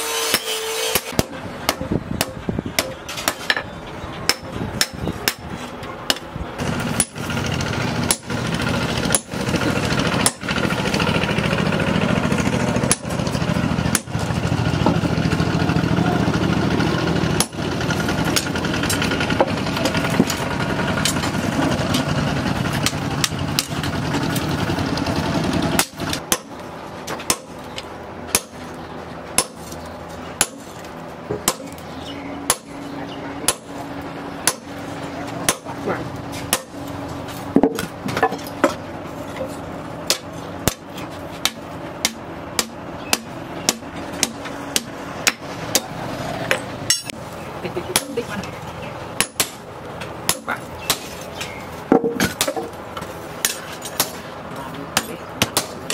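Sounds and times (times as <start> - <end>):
loud steady machine noise: 0.0 - 55.9
hammer striking metal on anvil: 33.5 - 33.7, 34.4 - 34.8, 46.5 - 47.2.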